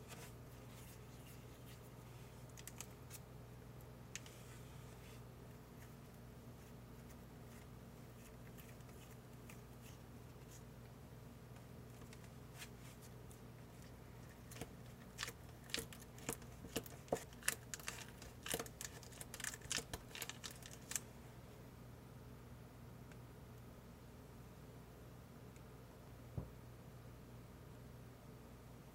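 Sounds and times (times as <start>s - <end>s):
plastic packet crinkling: 14.5s - 21.0s.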